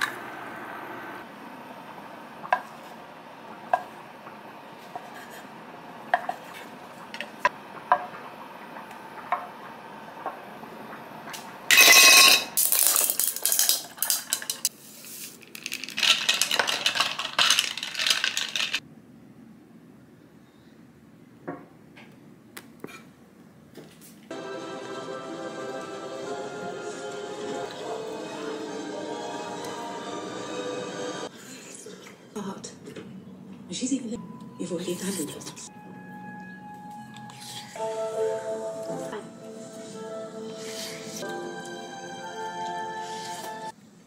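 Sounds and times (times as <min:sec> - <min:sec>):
dishes clinking: 0:11.7 - 0:12.6.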